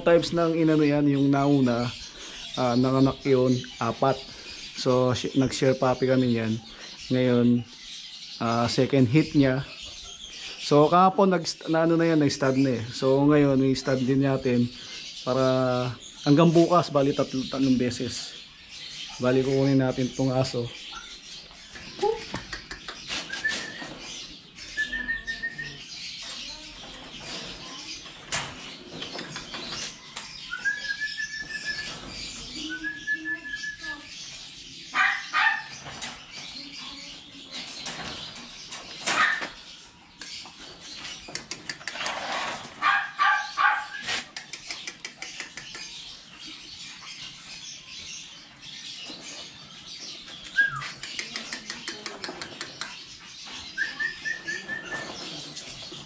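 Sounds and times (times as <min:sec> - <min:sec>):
dogs whining and yelping: 0:20.8 - 0:22.4, 0:29.8 - 0:33.8, 0:53.1 - 0:56.0.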